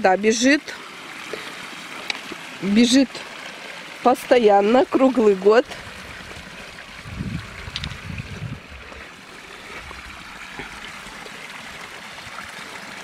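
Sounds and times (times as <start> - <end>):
spring water trickling: 0.0 - 13.0.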